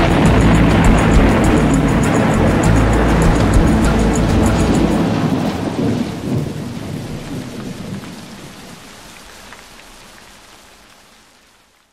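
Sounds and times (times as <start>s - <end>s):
low rumble of thunder: 0.0s - 8.4s
steady rain: 0.0s - 11.9s.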